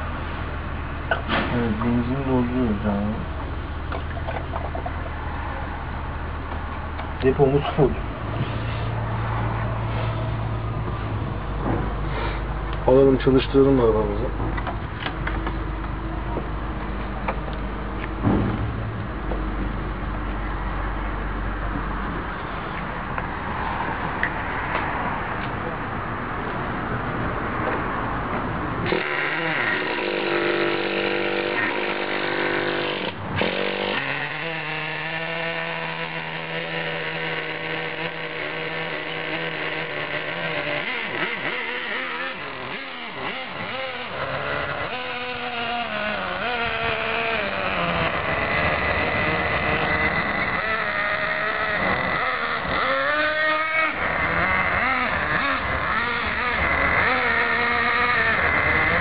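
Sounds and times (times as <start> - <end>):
sharp knock: 18.2 - 19.5
small nitro engine idling and revving: 27.6 - 59.0.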